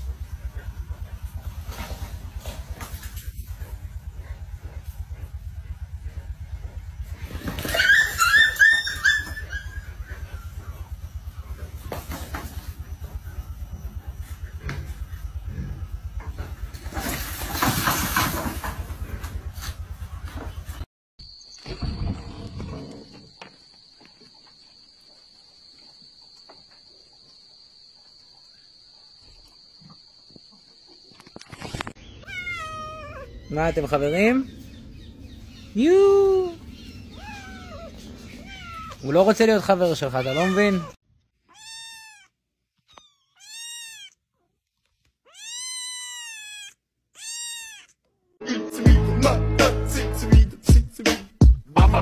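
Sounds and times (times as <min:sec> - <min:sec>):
cricket trilling: 0:21.2 - 0:40.9
kitten meowing: 0:32.2 - 0:34.2, 0:37.1 - 0:39.0, 0:40.2 - 0:42.3, 0:42.9 - 0:44.2, 0:45.2 - 0:48.0.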